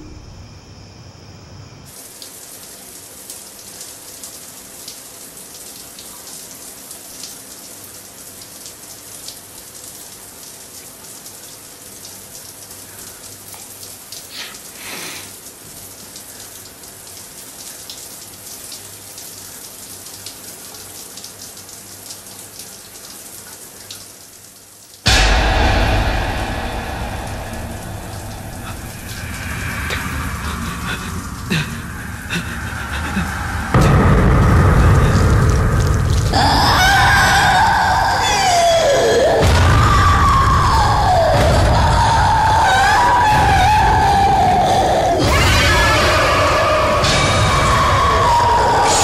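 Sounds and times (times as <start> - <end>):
steady rain patter: 1.9 - 25.6, 26.3 - 49.0
loud thunderclap: 25.1 - 38.0, 39.4 - 44.2, 45.2 - 49.0.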